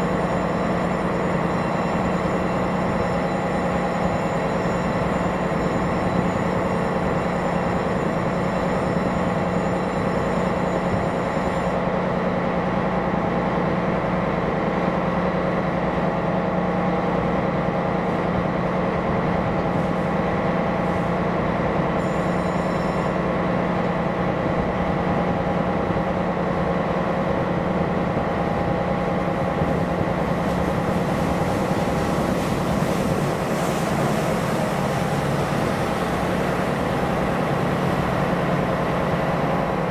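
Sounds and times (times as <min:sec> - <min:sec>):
faint high whine: 0:00.0 - 0:11.8, 0:22.0 - 0:23.3
ship diesel engine droning: 0:00.0 - 0:39.9.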